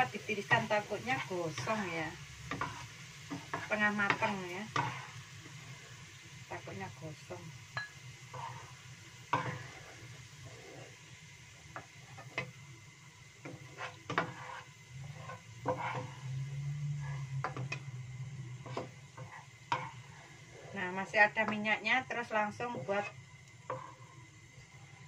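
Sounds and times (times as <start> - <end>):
oil sizzling: 0.0 - 25.0
spatula scraping a wok: 0.0 - 25.0
low hum: 14.9 - 25.0.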